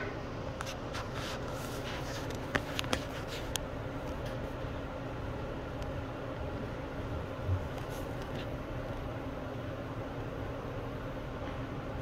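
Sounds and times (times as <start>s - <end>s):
low indoor hum: 0.0s - 12.0s.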